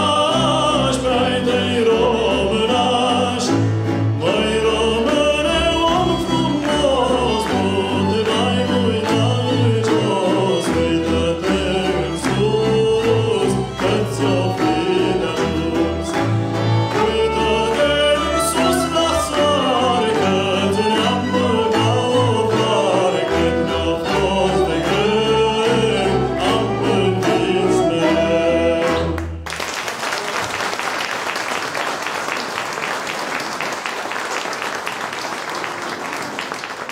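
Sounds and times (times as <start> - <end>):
male choir singing: 0.0 - 29.2
violins and double bass: 0.0 - 29.4
audience applause: 5.1 - 27.9, 28.8 - 36.9.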